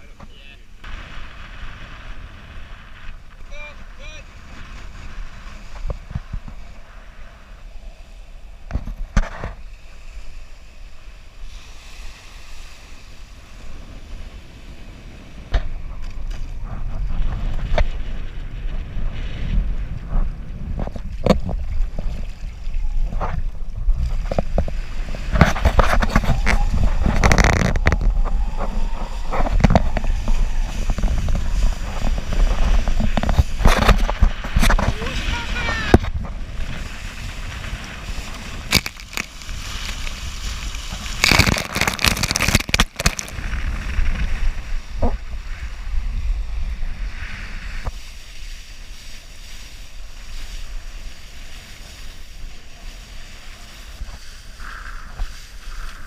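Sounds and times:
water slapping and spraying: 8.6 - 56.0
wind buffeting microphone: 12.2 - 56.0.

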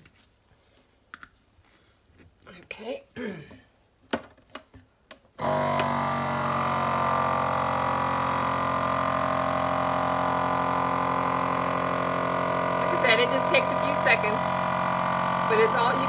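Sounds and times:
vacuum pump humming: 5.4 - 16.0.

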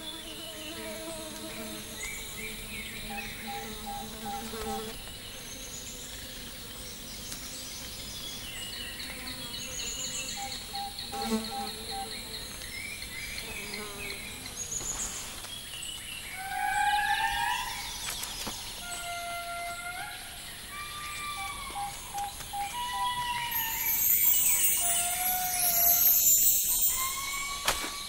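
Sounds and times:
insects buzzing and trilling: 0.0 - 28.0
high rising bird chirps: 20.8 - 28.0.

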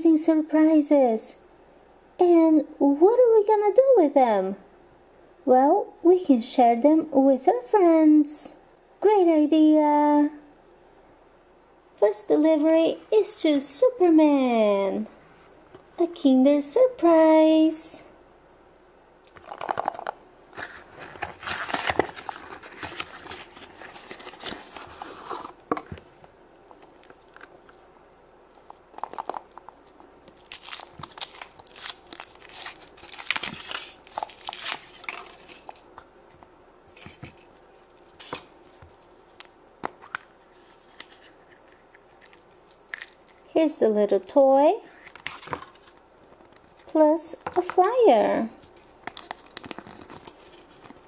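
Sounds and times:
foil wrapper crinkling: 19.4 - 27.9, 28.5 - 36.0, 36.9 - 43.5, 44.9 - 47.9, 48.7 - 51.0
chocolate cracking: 25.4 - 27.9, 28.5 - 36.0, 37.0 - 43.6, 45.0 - 47.9.

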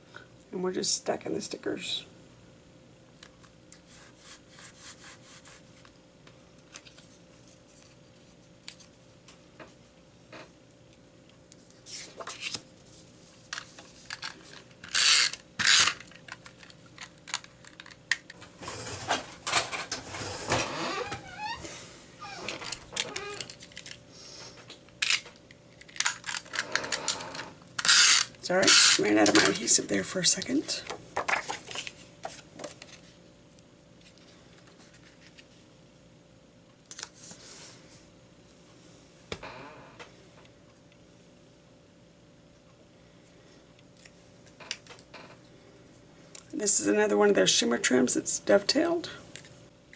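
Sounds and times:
paper rustling: 11.8 - 13.0.

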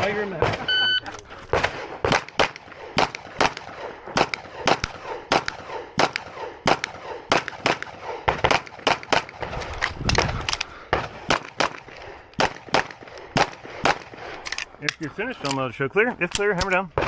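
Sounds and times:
pistol firing rapidly: 1.5 - 9.6, 10.6 - 14.5.

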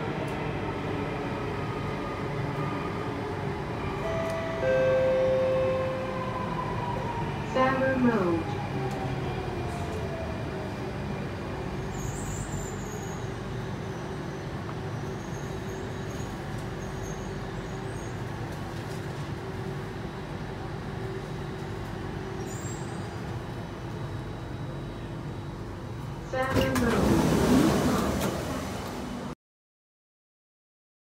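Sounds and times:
train wheels rumbling on rail: 8.5 - 29.3.

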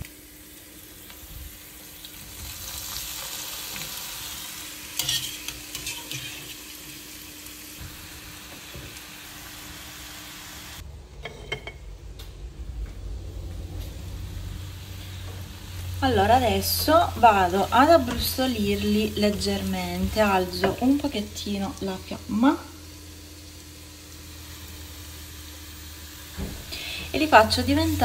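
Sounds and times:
food sizzling in a pan: 0.0 - 10.8, 13.8 - 28.0
low hum: 10.8 - 28.0.

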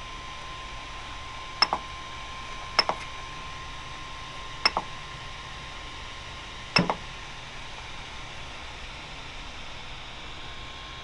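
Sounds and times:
knob double clicks: 1.6 - 1.8, 2.8 - 3.1, 4.7 - 4.9, 6.8 - 7.1.

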